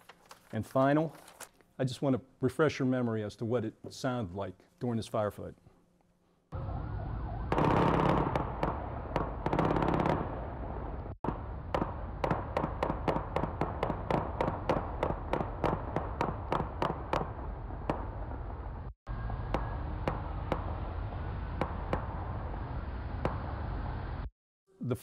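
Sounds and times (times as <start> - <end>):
separate gunshots: 7.5 - 18.3, 19.5 - 22.3
automatic gunfire bursts: 7.6 - 8.5, 9.2 - 10.3.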